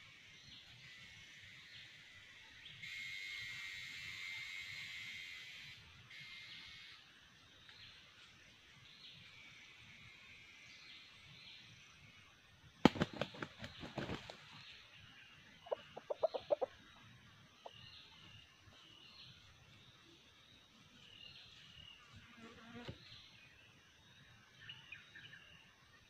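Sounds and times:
rooster clucking: 15.7 - 16.8.

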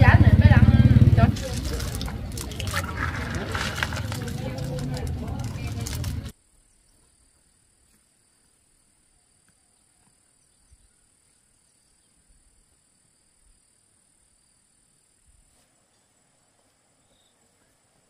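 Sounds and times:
faint insect drone: 6.3 - 18.0.

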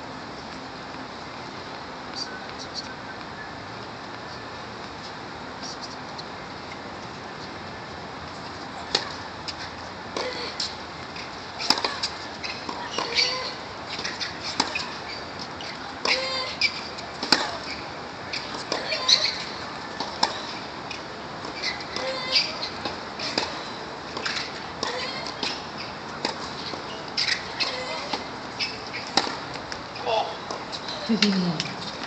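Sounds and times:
outdoor background hum: 0.0 - 32.0
tennis balls struck by rackets: 11.6 - 15.0, 16.0 - 17.7, 18.4 - 32.0.

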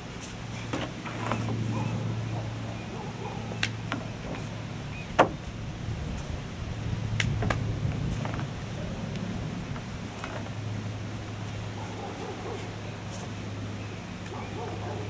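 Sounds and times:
steady low hum: 0.0 - 15.0
hands and feet striking wooden deck: 0.6 - 1.9.

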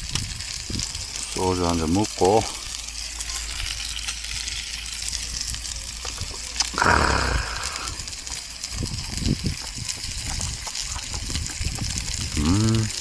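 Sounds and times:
meat sizzling on grill: 0.0 - 13.0
loud rush of noise: 6.8 - 8.0.

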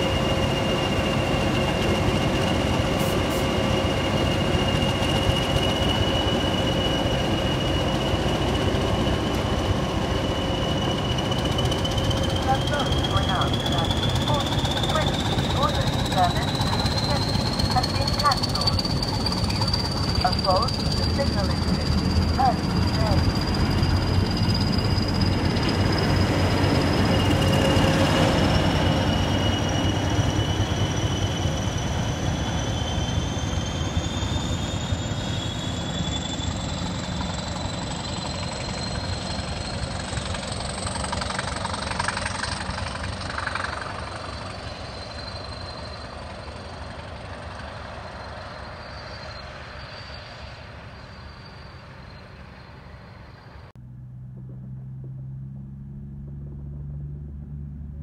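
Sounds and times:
high wheel squeal: 0.0 - 53.7
freight train rumbling past: 0.0 - 58.0
low steady hum: 53.7 - 58.0.

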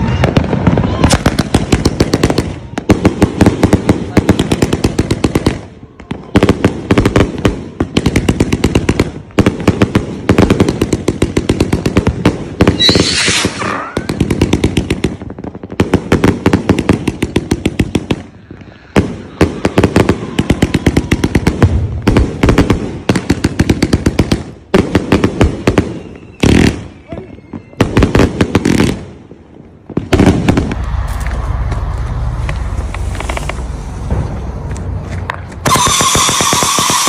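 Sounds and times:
fireworks bangs and crackling: 0.0 - 37.0.

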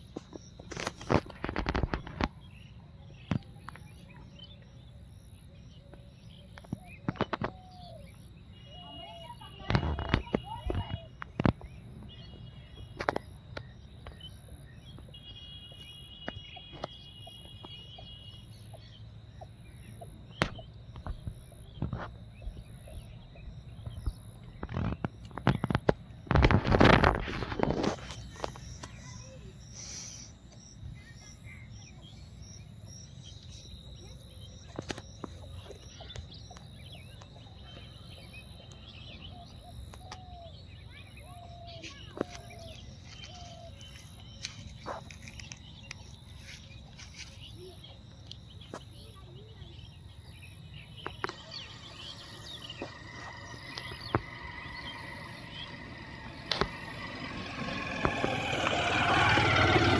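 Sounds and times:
bird chirps: 0.0 - 59.9
steady high whine: 50.9 - 59.9
long falling bird call: 51.2 - 59.9
low steady rumble: 51.4 - 59.9
sharp clicks: 52.3 - 59.9.

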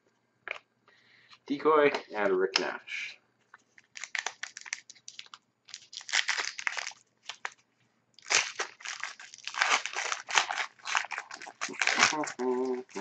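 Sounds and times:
plastic wrapper crinkling: 3.5 - 7.6, 8.2 - 13.0.

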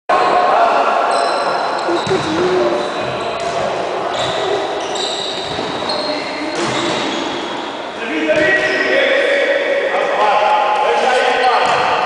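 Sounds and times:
ball kicked and bouncing: 2.0 - 2.4.

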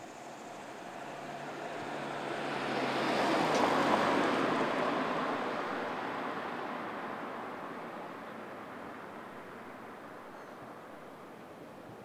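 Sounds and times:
vehicle tyres rushing past: 0.3 - 7.2.

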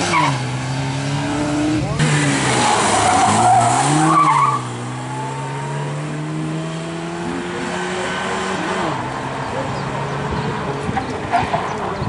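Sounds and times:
rally car engine accelerating: 0.0 - 12.0
tyres skidding on gravel: 1.8 - 6.2.

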